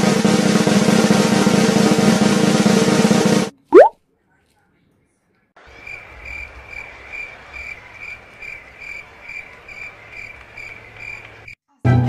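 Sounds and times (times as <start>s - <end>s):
crickets chirping: 5.8s - 11.3s.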